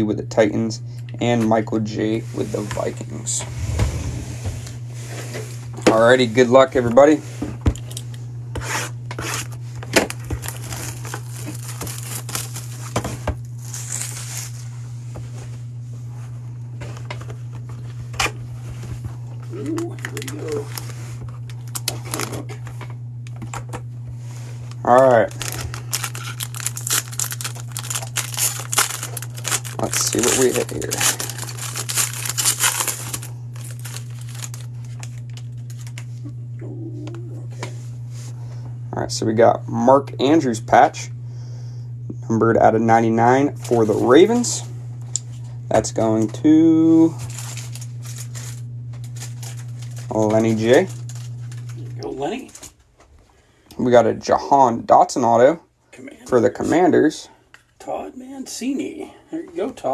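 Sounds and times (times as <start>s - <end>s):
steady low hum: 0.0s - 59.9s
cardboard box crinkling and rustling: 10.4s - 13.0s, 25.4s - 35.9s, 47.3s - 48.5s.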